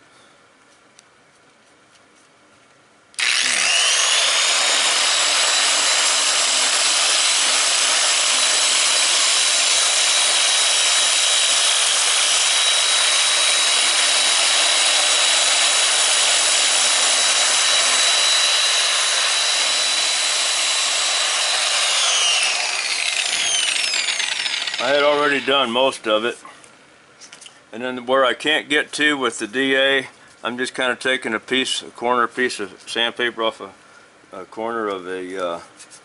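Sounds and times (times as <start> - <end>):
orbital sander whining: 3.2 - 25.8.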